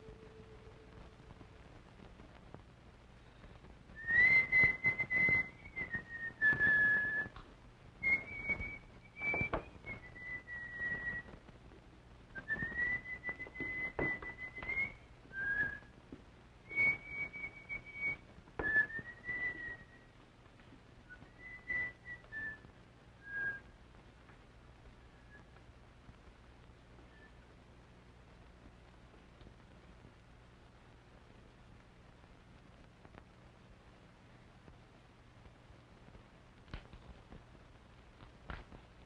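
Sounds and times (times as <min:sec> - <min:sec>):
man whistling a slow tune: 0:04.0 - 0:07.4, 0:08.0 - 0:11.4, 0:12.4 - 0:15.9, 0:16.7 - 0:20.1, 0:21.1 - 0:23.7, 0:27.1 - 0:27.4.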